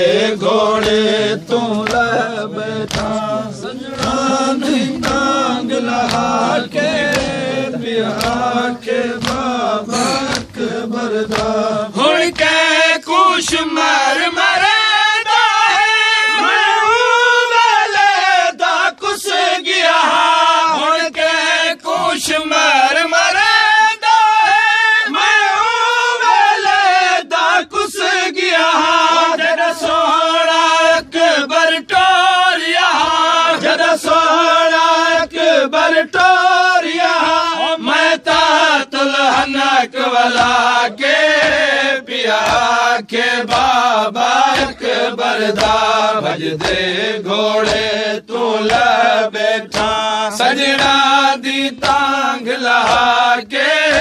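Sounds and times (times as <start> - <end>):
men chanting a lament: 0.0 - 54.0
hands slapping chests: 0.1 - 14.9, 38.0 - 54.0.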